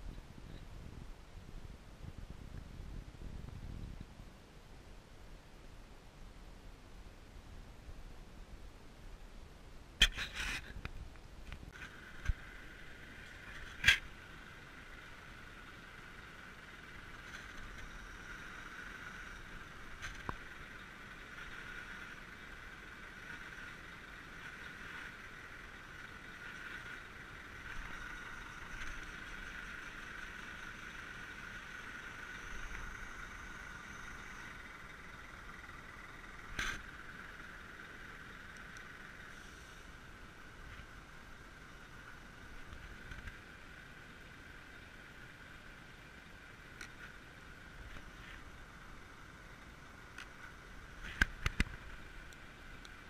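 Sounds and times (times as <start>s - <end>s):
mechanical whine: 11.6s - 53.0s.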